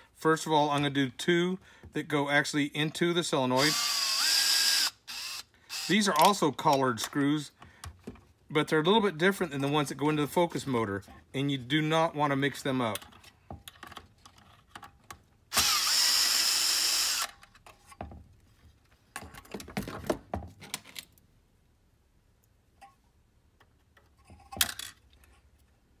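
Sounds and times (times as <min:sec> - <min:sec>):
cordless drill running: 0:03.6 - 0:06.3, 0:15.5 - 0:17.4.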